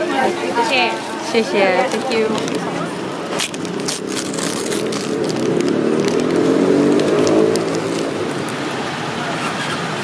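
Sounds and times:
vehicle engine passing by: 3.5 - 10.0.

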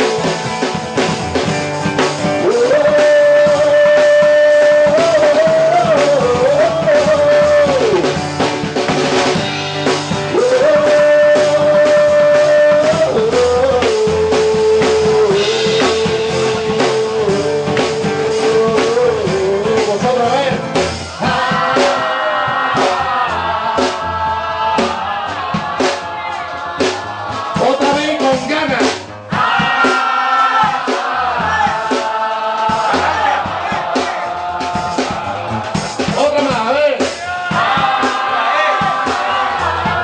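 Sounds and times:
guitars: 0.0 - 25.7
drum kit: 0.0 - 40.0
man singing long held notes: 2.4 - 8.2, 10.3 - 20.5.

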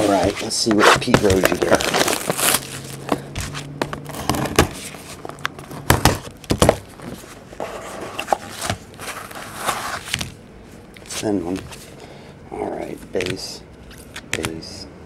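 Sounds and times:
cellophane crinkling and tearing: 0.0 - 5.9
low steady hum: 0.0 - 15.0.

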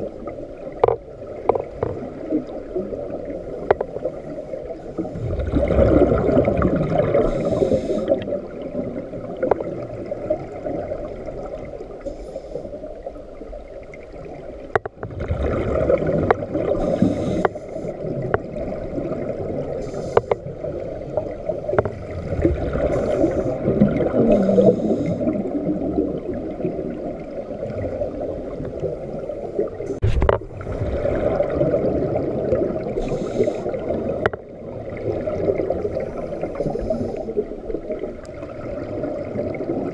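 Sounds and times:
low watery rumble: 0.0 - 39.9
regulator bubbles rushing: 5.2 - 11.1, 15.0 - 16.8, 29.6 - 33.0.

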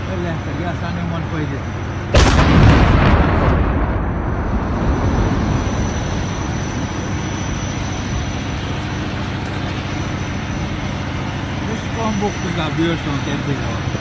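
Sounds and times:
steady rushing noise: 0.0 - 14.0
explosion rumble: 2.1 - 7.2.

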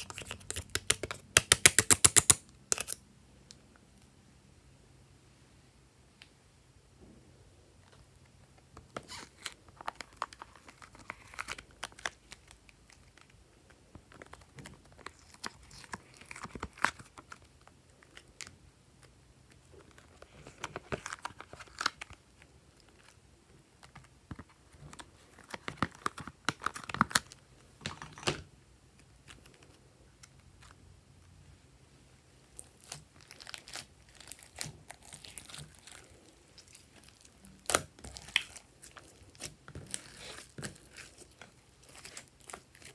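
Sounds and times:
plastic tray crinkling and crackling: 32.6 - 42.9.

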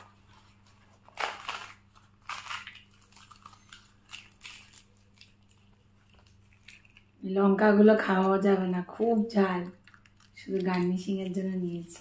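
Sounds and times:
bread tearing: 0.6 - 7.2
crackly bite and chew noises: 1.2 - 7.2, 9.7 - 11.4.

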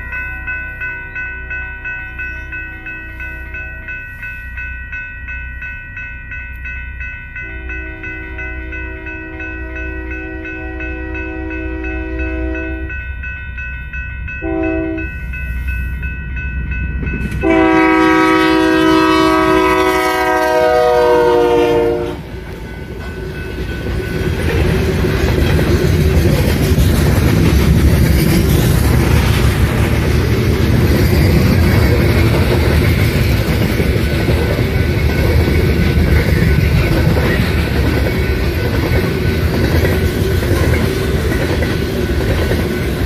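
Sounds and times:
train cars rumbling: 0.0 - 43.0
wheels clacking on rails: 0.0 - 43.0
locomotive air horn: 7.4 - 12.9, 14.4 - 15.1, 17.4 - 22.3.

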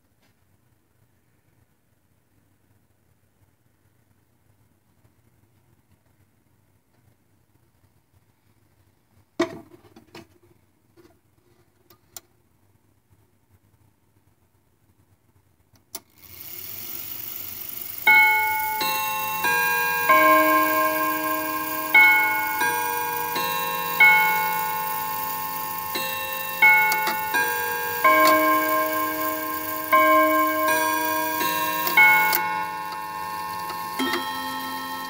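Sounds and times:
chime clock playing a tune: 17.9 - 35.0.

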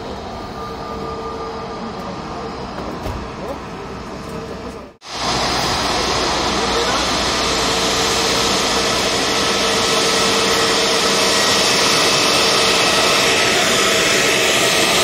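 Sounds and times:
jet turbine whine: 0.0 - 15.0
loud rushing noise: 5.0 - 15.0.

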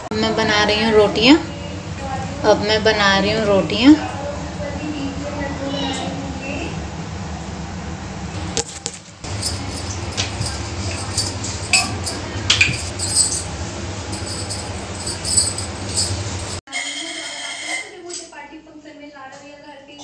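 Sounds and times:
steady low hum: 0.0 - 16.6
steel utensils clinking: 8.6 - 16.6.

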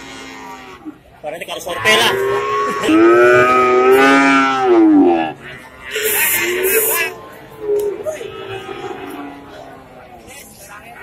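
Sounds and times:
murmur of voices: 0.0 - 11.0
cow mooing: 1.7 - 10.0.

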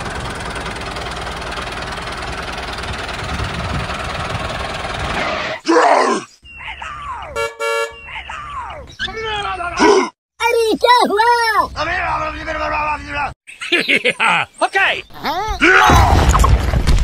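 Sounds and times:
tractor engine running: 0.0 - 5.5
horn toot: 7.4 - 8.0.

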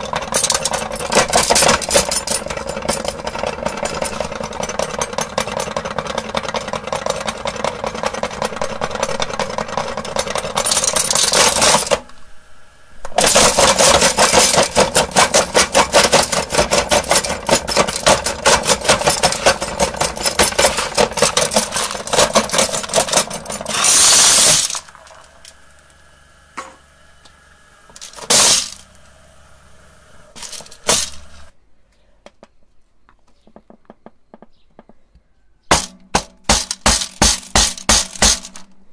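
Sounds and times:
marbles rattling in meat grinder: 0.0 - 12.0, 13.1 - 25.6, 27.9 - 29.0, 30.3 - 31.5
knocks: 33.3 - 35.1.

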